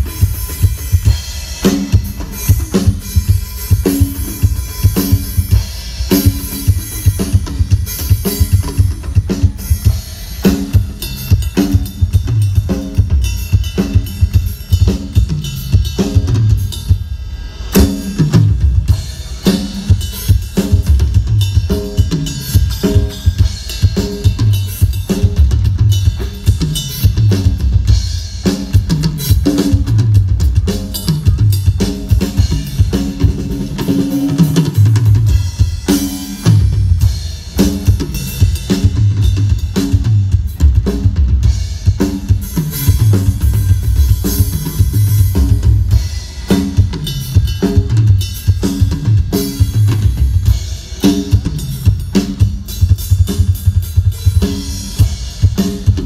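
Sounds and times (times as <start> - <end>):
drum kit playing through loudspeakers: 0.0 - 56.0.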